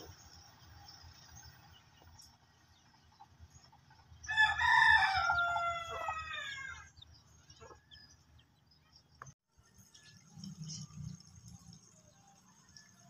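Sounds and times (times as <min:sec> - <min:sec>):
rooster crowing: 0:04.2 - 0:07.0.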